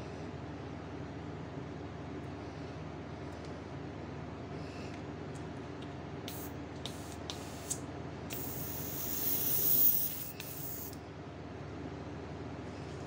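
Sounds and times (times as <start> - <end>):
airbrush spraying paint: 6.3 - 11.0.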